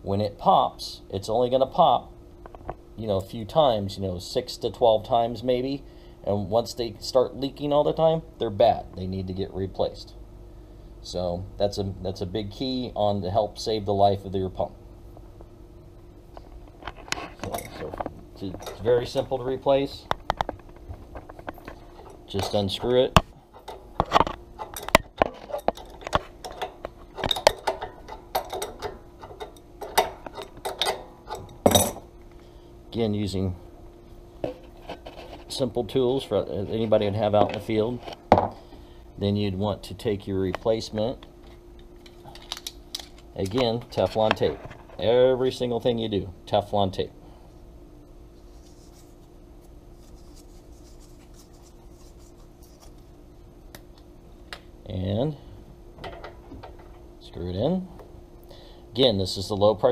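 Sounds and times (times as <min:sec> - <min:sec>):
steady low hum: 0:00.0 - 0:59.9
tape crinkling and rustling: 0:48.4 - 0:53.2.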